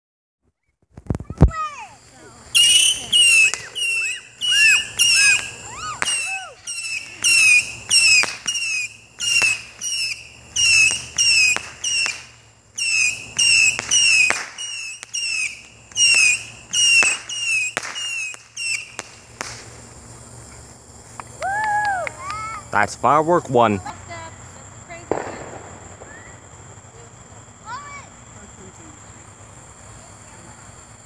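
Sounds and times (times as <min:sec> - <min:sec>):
firework whistling pulses: 0:01.0 - 0:31.0.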